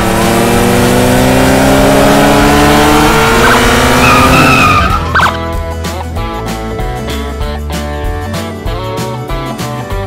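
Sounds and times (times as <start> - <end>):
car engine accelerating: 0.0 - 5.7
high squeal: 3.4 - 5.4.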